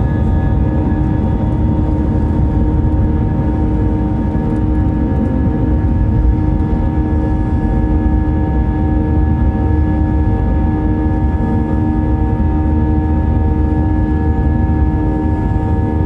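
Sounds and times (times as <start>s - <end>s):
engine hum: 0.0s - 16.0s
jet engines rumbling in cabin: 0.0s - 16.0s.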